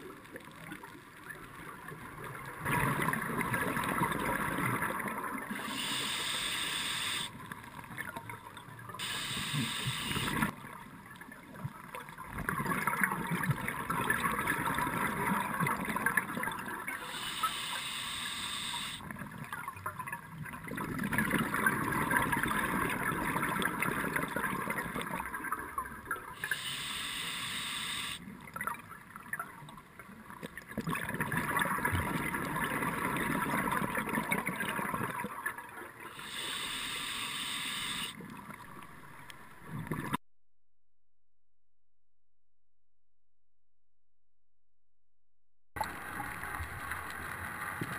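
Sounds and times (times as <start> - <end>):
regulator inhale hiss: 5.5 - 7.4, 9.0 - 10.5, 17.0 - 19.0, 26.4 - 28.2, 36.1 - 38.2.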